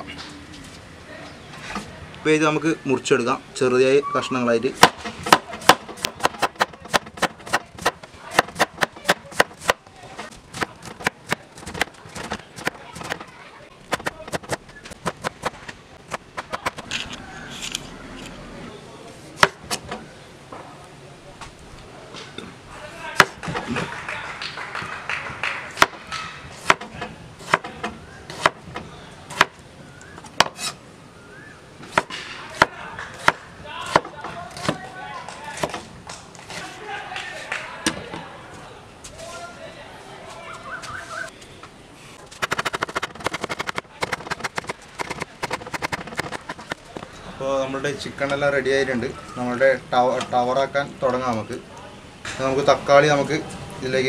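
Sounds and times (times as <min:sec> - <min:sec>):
knife chopping on wooden board: 0:04.8 - 0:09.8, 0:13.9 - 0:16.9, 0:26.6 - 0:29.6, 0:42.4 - 0:46.8
knife shredding cabbage on board: 0:42.4 - 0:46.7.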